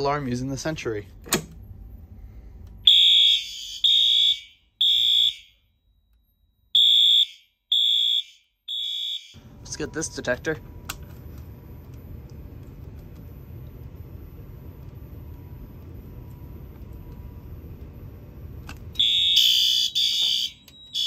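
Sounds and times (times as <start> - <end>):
low steady rumble: 0.0 - 3.8, 9.4 - 19.4
shrill electronic alarm beeping: 1.6 - 10.1, 13.3 - 21.0.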